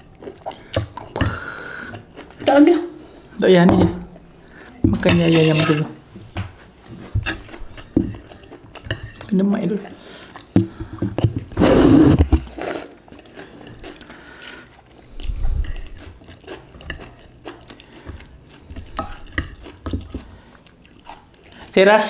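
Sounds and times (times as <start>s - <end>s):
chewing: 0.0s - 2.7s, 6.6s - 11.6s, 12.4s - 21.8s.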